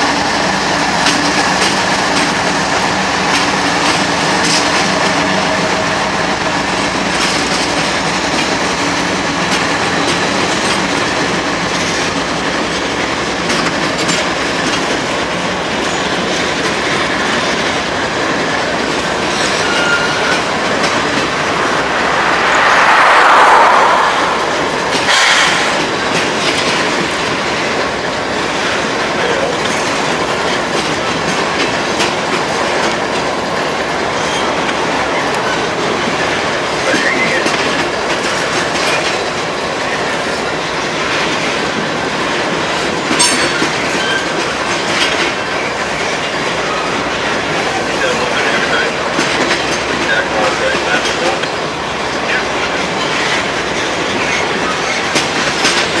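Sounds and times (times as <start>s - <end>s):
train wheels clattering on rails: 0.0s - 21.6s, 24.9s - 56.0s
train wheel squeals: 19.3s - 21.2s, 43.2s - 44.6s.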